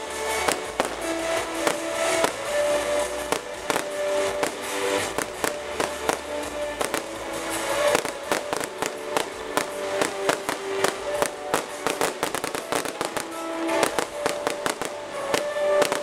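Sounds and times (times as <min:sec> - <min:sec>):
firework bangs and crackles: 0:00.0 - 0:16.0
music with long held notes: 0:00.0 - 0:16.0.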